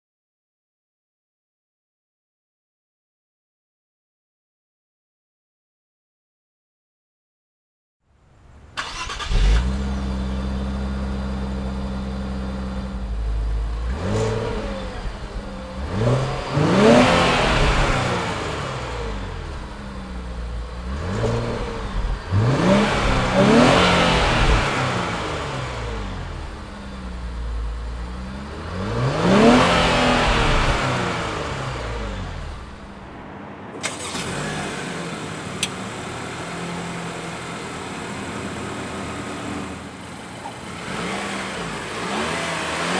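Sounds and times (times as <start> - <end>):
car engine starting and revving: 8.7 - 42.9
four-cylinder engine idling: 8.8 - 13.9, 25.8 - 28.6, 33.8 - 40.8
click: 35.6 - 35.8.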